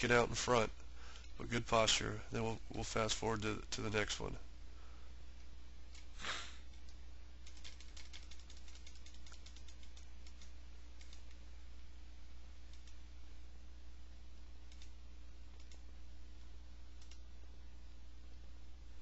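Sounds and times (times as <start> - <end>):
low electrical hum: 0.0 - 19.0
small clicks on computer controls: 0.7 - 1.4, 5.4 - 11.5, 12.6 - 13.1, 14.3 - 17.4.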